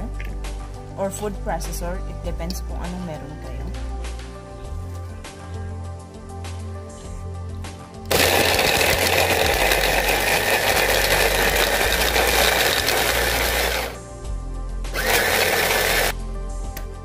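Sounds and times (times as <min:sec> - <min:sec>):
food processor chopping: 0:08.1 - 0:14.0, 0:15.0 - 0:16.1.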